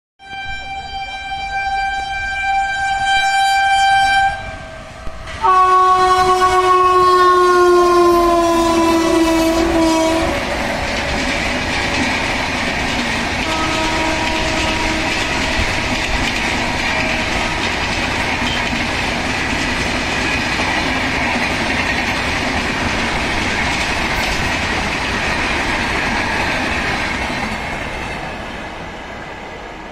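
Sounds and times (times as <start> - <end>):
train horn blasts: 0.2 - 10.8, 13.4 - 18.6
rolling rush of passing train: 0.2 - 29.9.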